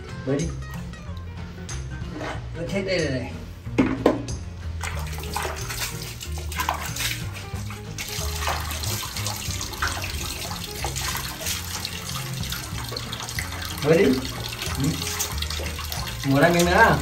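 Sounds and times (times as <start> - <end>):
background music with bass: 0.0 - 17.0
water splashing: 4.8 - 17.0.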